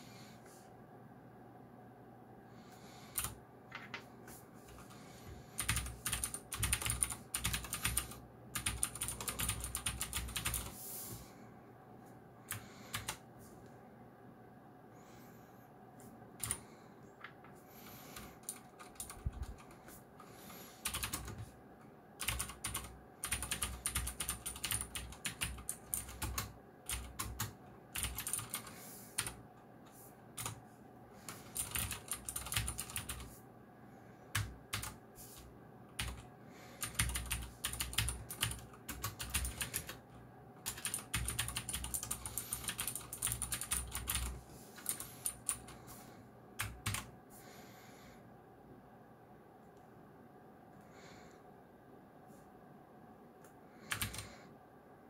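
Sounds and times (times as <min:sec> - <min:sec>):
clicky mechanical keyboard typing: 0:03.1 - 0:04.1, 0:05.6 - 0:10.7, 0:12.5 - 0:13.2, 0:16.4 - 0:16.6, 0:18.4 - 0:19.9, 0:20.8 - 0:21.5, 0:22.2 - 0:29.4, 0:30.4 - 0:30.6, 0:31.3 - 0:33.3, 0:34.3 - 0:36.2, 0:36.8 - 0:40.0, 0:40.6 - 0:45.8, 0:46.6 - 0:47.1, 0:53.9 - 0:54.3.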